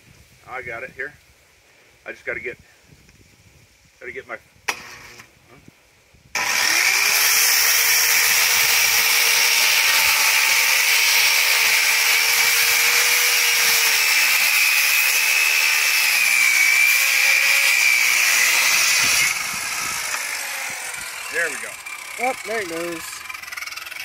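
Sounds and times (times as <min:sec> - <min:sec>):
circular saw cutting wood: 0:04.7 - 0:05.3, 0:06.4 - 0:24.0.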